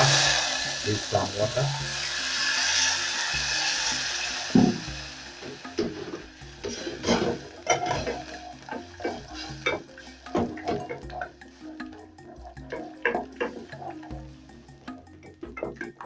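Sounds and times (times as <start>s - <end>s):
water sizzling in hot pan: 0.0s - 16.0s
wooden spoon scraping metal pot: 5.7s - 14.4s.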